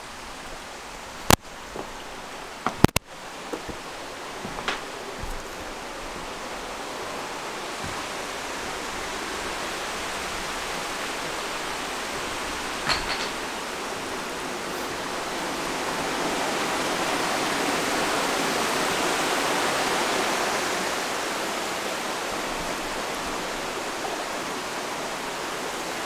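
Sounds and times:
waterfall rushing over boulders: 0:00.0 - 0:26.0.

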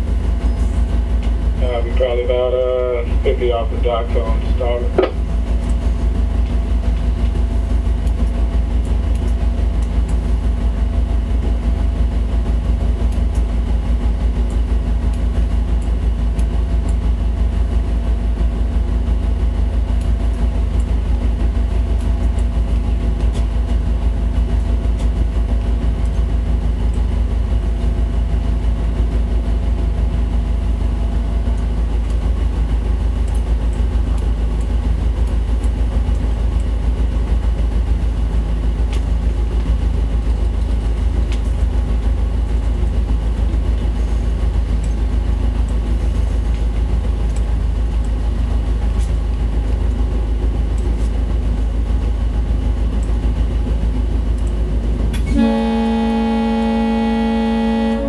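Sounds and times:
diesel engines droning: 0:00.0 - 0:29.6, 0:53.0 - 0:58.0.

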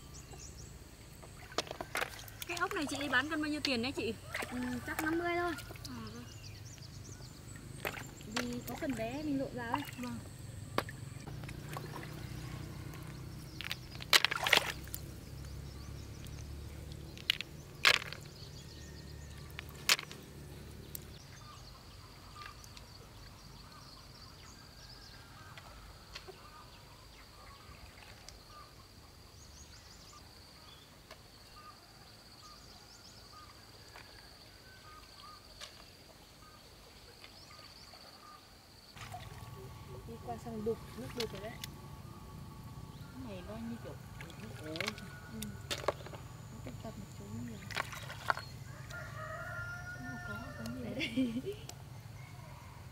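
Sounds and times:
snails clacking in plastic basin: 0:12.9 - 0:15.1, 0:16.2 - 0:18.6, 0:19.4 - 0:20.4, 0:44.0 - 0:49.0.

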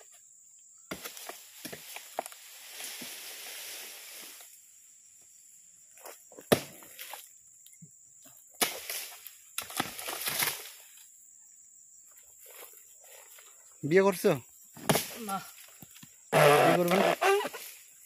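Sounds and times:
palm leaves rustling: 0:00.9 - 0:04.8, 0:08.6 - 0:11.1, 0:12.4 - 0:18.0
blade chopping palm fronds: 0:06.5 - 0:06.8, 0:14.8 - 0:15.3.

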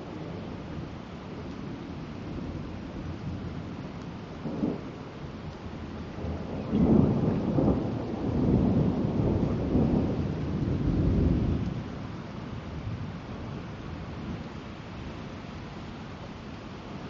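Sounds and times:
steady rain: 0:00.0 - 0:17.0
thunder rumbling: 0:04.3 - 0:12.0.

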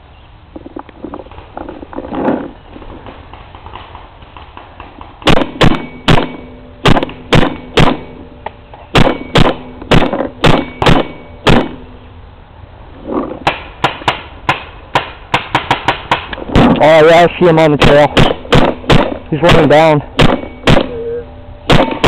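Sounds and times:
paintball marker shots: 0:08.9 - 0:11.8, 0:17.8 - 0:21.0.

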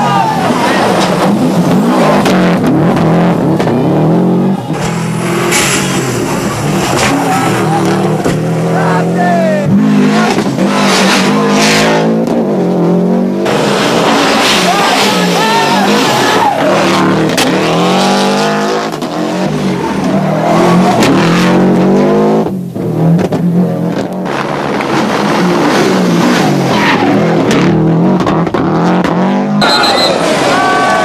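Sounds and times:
rally car engine at full throttle: 0:00.0 - 0:31.0
exhaust cracks: 0:04.6 - 0:08.8.

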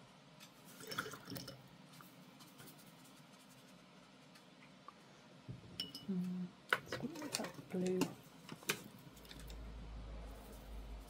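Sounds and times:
brush dabbing on paper: 0:01.9 - 0:04.6.

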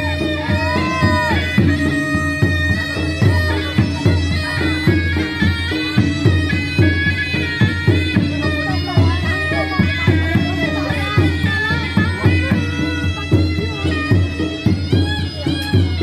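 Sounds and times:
steady drum beat: 0:00.0 - 0:16.0.

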